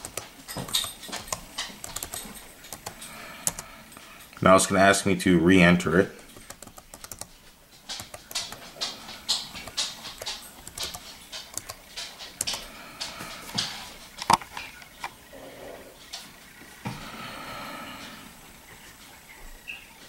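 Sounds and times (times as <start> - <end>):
laptop keyboard typing: 0.0 - 4.1, 6.2 - 15.2.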